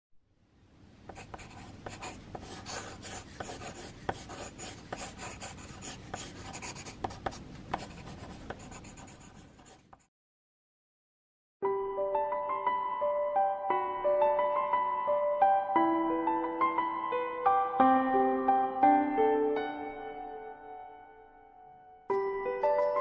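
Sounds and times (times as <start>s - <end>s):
pencil sketching on paper: 1.1s - 10.1s.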